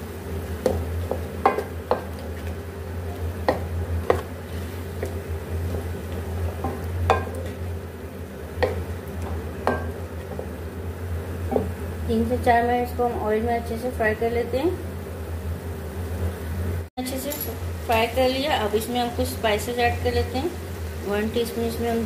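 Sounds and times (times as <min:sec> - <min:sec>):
frying oil sizzle: 0:00.0 - 0:22.0
steady low hum: 0:00.0 - 0:22.0
wooden spatula knocking metal pan: 0:00.6 - 0:02.2, 0:06.5 - 0:07.6, 0:08.6 - 0:10.5.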